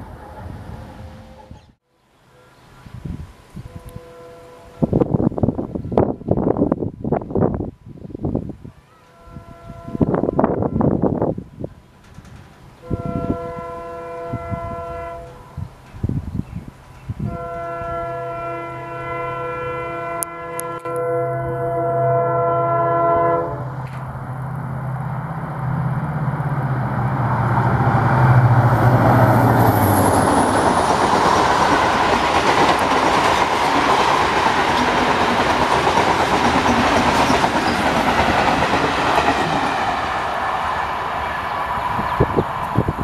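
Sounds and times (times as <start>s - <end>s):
locomotive horn blast: 3.6s - 5.0s, 8.9s - 11.1s, 12.8s - 15.6s, 17.2s - 23.9s
train wheels rumbling on rails: 10.0s - 18.1s, 23.7s - 43.0s
locomotive engine drone: 17.5s - 43.0s.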